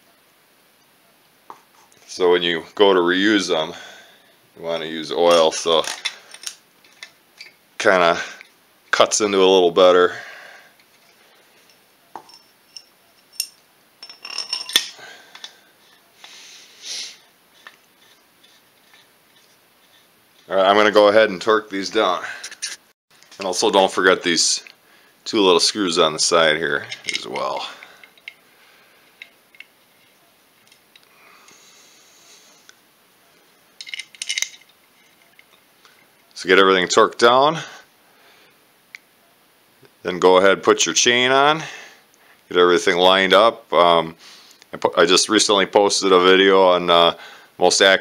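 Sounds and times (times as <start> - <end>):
hand tools clicking and clattering: 5.3 - 7.5, 11.6 - 16.0, 26.8 - 28.4, 33.8 - 35.5
metal bolts clinking: 12.2 - 15.5, 26.8 - 28.4, 33.8 - 35.4.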